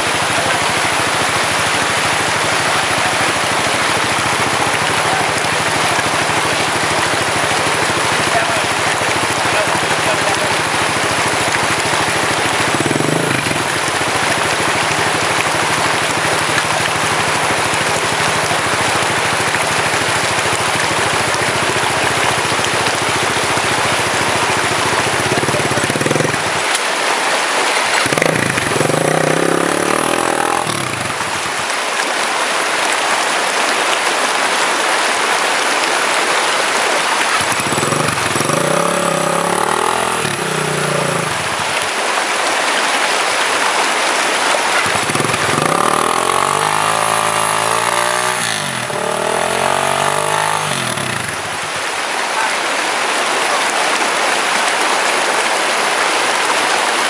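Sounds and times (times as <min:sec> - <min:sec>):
dirt bike engine revving: 0:00.0 - 0:26.8, 0:27.8 - 0:31.7, 0:37.2 - 0:42.0, 0:44.4 - 0:52.1
stream water rushing: 0:00.0 - 0:57.0.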